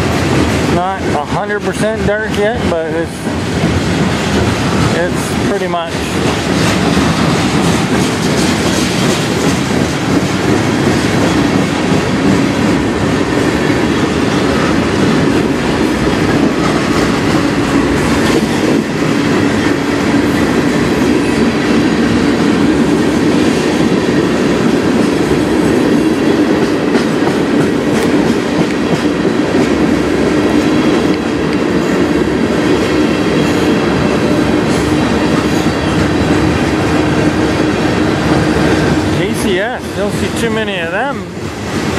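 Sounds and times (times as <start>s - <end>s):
steel wheels rolling on rails: 0.0s - 41.9s
wheels clicking over rail joints: 0.0s - 41.9s.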